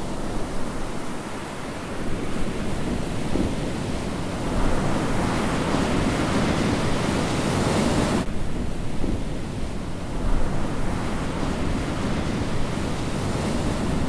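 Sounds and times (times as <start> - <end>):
ocean surf on rocky shore: 0.0 - 14.0.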